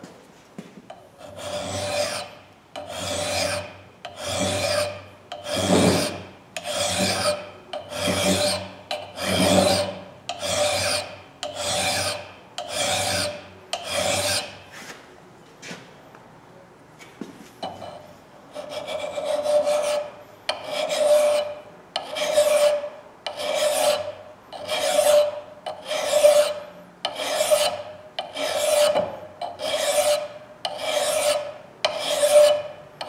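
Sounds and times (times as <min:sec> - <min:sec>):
hand file rasping on steel: 0:01.2 - 0:14.6, 0:18.5 - 0:32.8.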